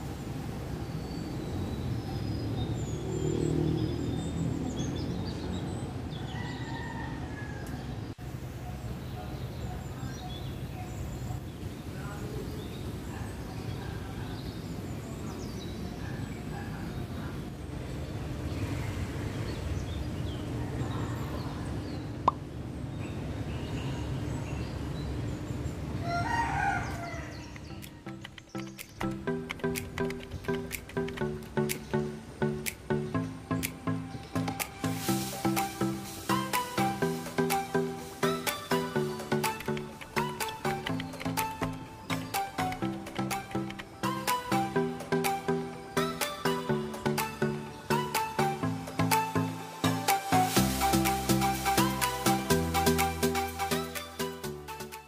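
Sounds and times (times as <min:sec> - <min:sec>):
birds chirping and whistling: 0:00.7 - 0:07.0, 0:23.0 - 0:55.0.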